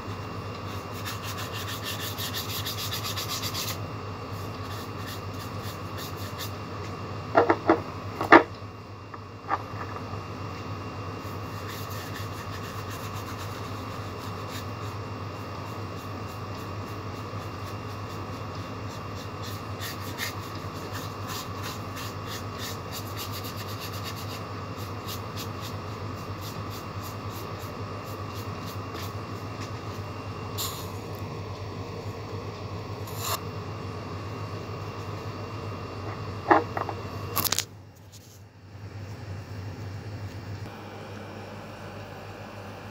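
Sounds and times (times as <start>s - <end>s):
steady low hum: 0.0s - 42.9s
paintbrush scratching on paper: 0.7s - 6.6s, 11.2s - 15.0s, 15.6s - 30.0s.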